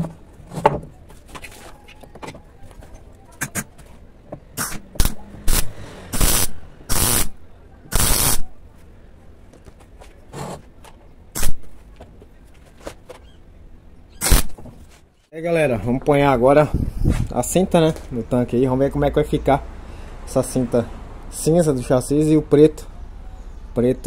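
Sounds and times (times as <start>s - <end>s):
crackling welding bursts: 4.6s - 8.5s, 11.4s - 11.6s, 14.2s - 14.6s.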